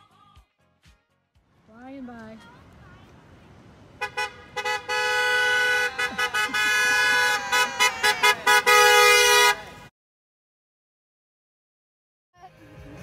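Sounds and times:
car horns honking: 0:04.0 - 0:09.9.

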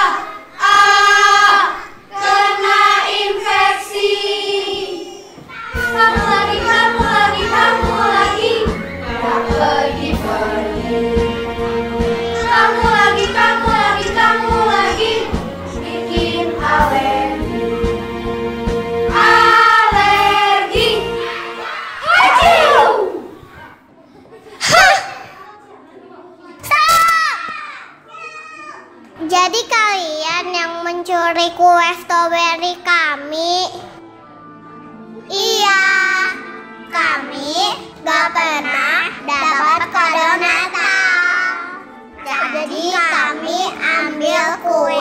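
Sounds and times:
children singing: 0:00.0 - 0:23.4, 0:38.2 - 0:45.0.

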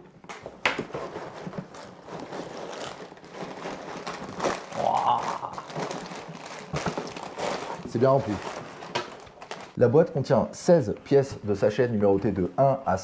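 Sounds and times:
plastic bags rustling: 0:00.4 - 0:09.8.

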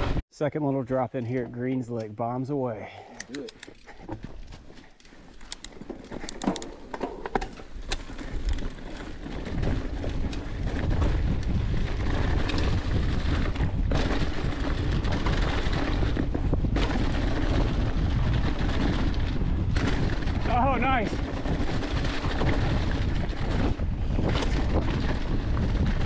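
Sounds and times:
bike clicks and rattles: 0:03.1 - 0:26.0
bike tyres on dirt trail: 0:03.9 - 0:26.0
wind noise on microphone: 0:07.4 - 0:26.0.

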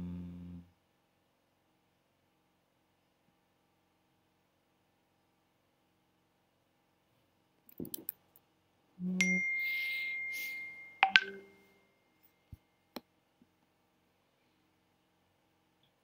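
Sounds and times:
thin high tone: 0:09.0 - 0:11.8
notification chime ding: 0:09.2 - 0:11.6.

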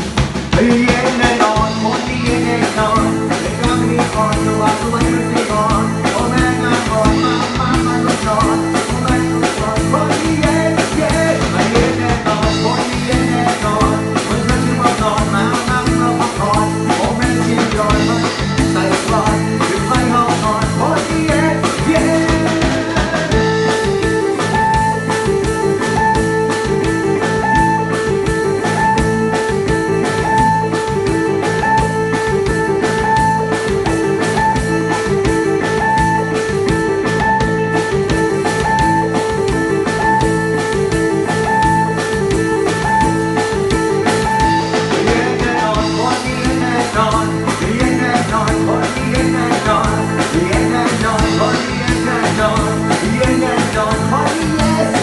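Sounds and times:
drum kit: 0:00.0 - 0:55.0
guitar: 0:00.0 - 0:55.0
man singing into a microphone: 0:00.5 - 0:23.8, 0:44.6 - 0:55.0.

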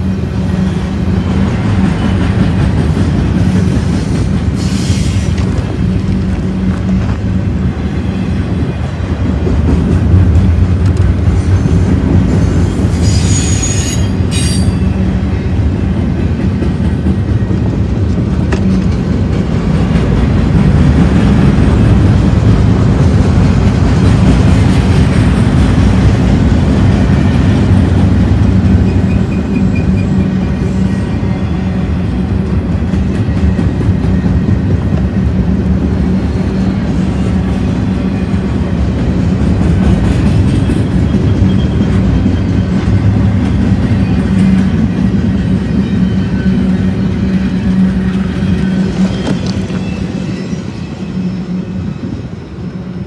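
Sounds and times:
train wheels rumbling on rail: 0:00.0 - 0:53.0
wheel squeal: 0:12.8 - 0:14.9, 0:28.6 - 0:31.6, 0:40.5 - 0:42.9, 0:43.8 - 0:52.2.

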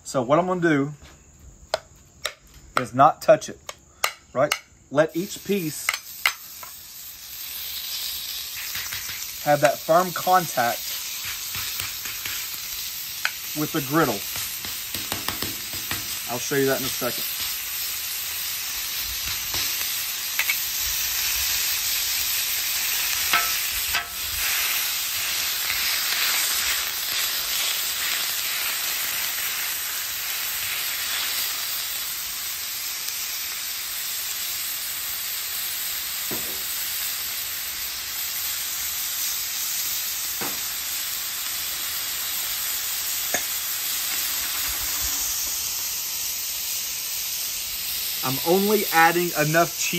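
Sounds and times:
meat sizzling on a griddle: 0:03.8 - 0:49.9.

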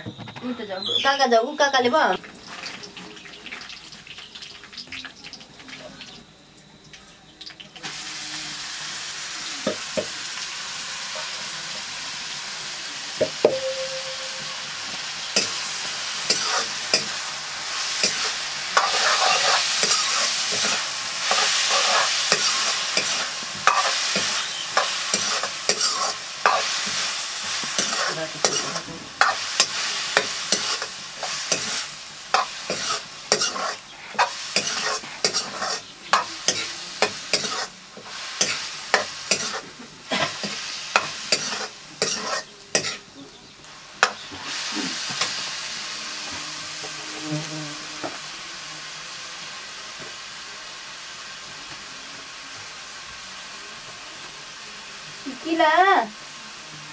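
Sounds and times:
mushrooms sizzling in oil: 0:00.6 - 0:56.9
spatula scraping a wok: 0:14.7 - 0:43.1.

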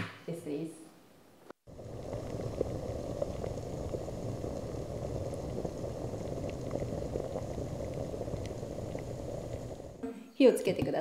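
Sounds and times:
water boiling in a saucepan: 0:01.6 - 0:10.0.

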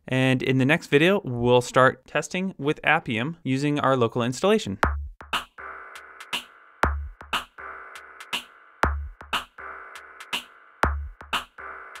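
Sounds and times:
drum machine beat: 0:04.8 - 0:12.0.

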